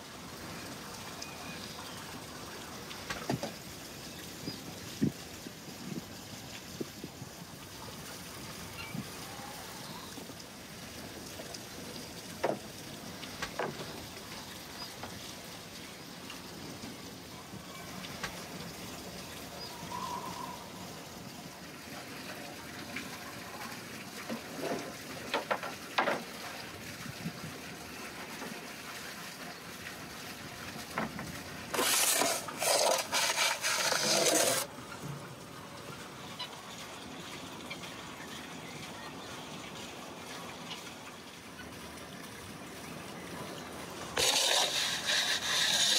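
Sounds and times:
water trickling: 0.0 - 45.9
scraping on wooden board: 31.7 - 34.7, 44.2 - 45.9.

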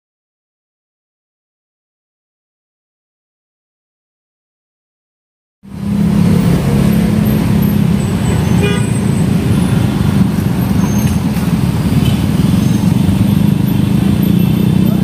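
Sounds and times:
motorcycles and cars passing: 5.7 - 15.0.

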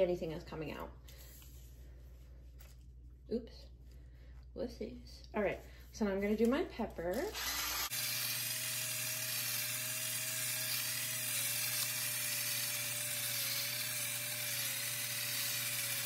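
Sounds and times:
electric pepper grinder whining: 7.3 - 16.0.

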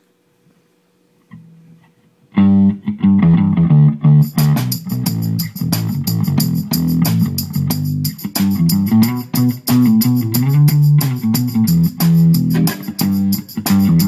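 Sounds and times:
drums with cymbal beat: 4.2 - 14.0
rock band playing: 4.3 - 14.0
soft guitar notes: 8.3 - 14.0.

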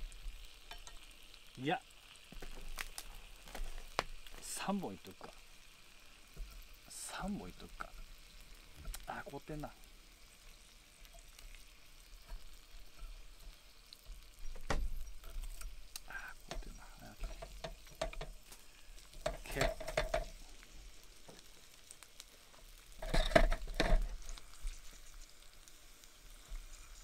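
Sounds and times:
chicken sizzling in oil: 0.0 - 27.0
utensil clinking and scraping pan: 12.2 - 13.6, 16.5 - 18.4, 19.1 - 20.4, 23.0 - 24.3.

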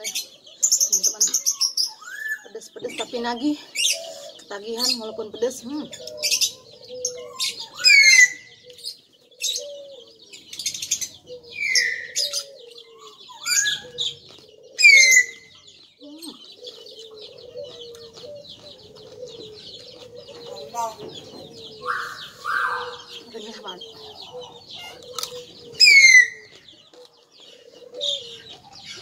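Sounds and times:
songbirds chirping: 0.0 - 29.0
high twittering: 20.7 - 26.5.

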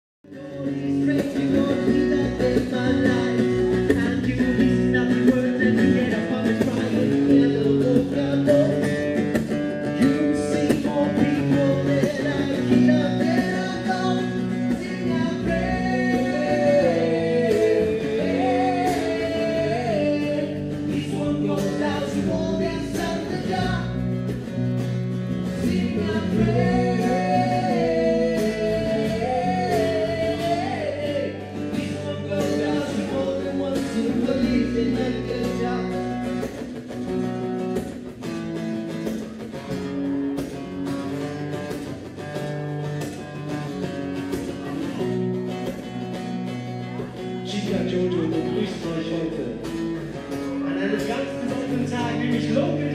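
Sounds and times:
man singing: 0.2 - 24.4, 25.3 - 36.8, 46.9 - 52.9
bass guitar: 0.2 - 52.9
drums: 0.2 - 52.9
guitar: 0.2 - 52.9.

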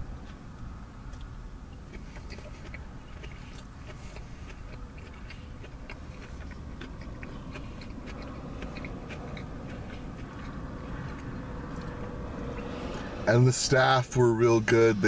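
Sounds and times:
low car cabin rumble: 0.0 - 15.0
person chewing food: 1.0 - 13.2.

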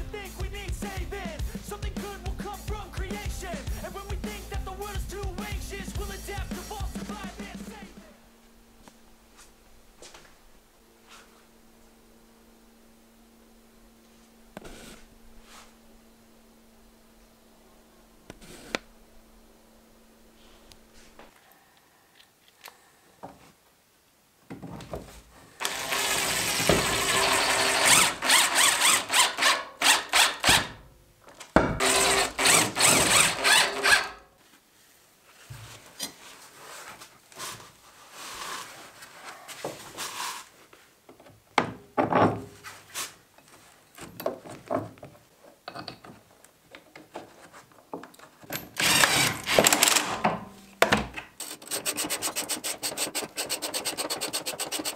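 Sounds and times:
impact driver hammering bolts: 31.6 - 34.2, 48.6 - 51.0.

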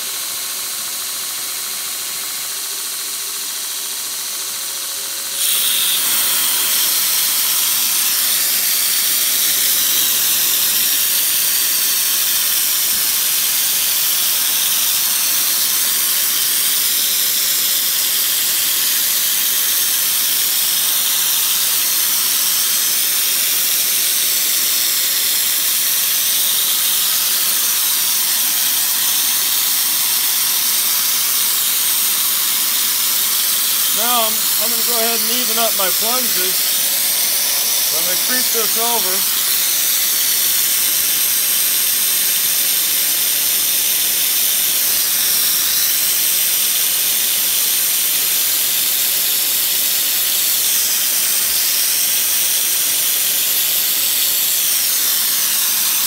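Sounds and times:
belt grinder running: 1.7 - 56.0
coolant mister hissing: 5.3 - 47.0.

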